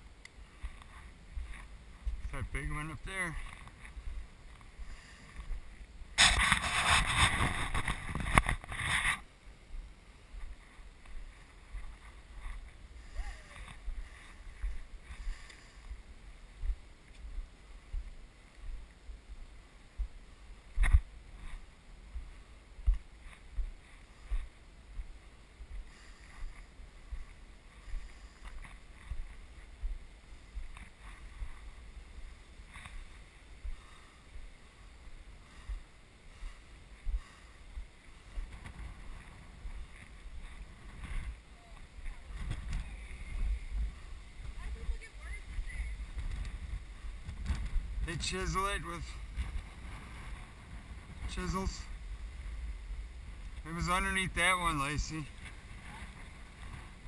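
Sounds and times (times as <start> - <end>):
rushing noise on microphone: 0.0 - 9.3, 19.9 - 57.0
footsteps on stone: 10.4 - 12.8, 20.8 - 31.9.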